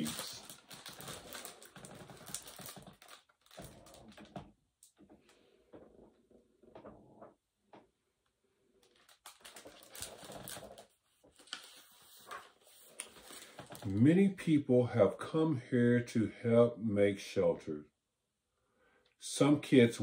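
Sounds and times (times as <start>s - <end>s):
paper rustling: 0.0s - 4.3s, 8.8s - 14.0s.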